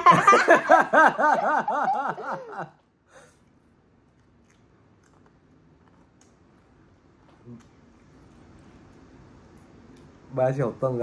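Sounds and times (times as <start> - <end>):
person laughing: 0.0 - 2.8.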